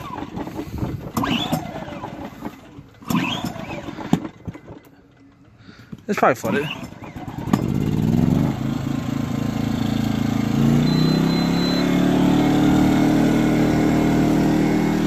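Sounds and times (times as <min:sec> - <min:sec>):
generator engine running: 0:00.0 - 0:15.0
high beep: 0:10.7 - 0:12.6.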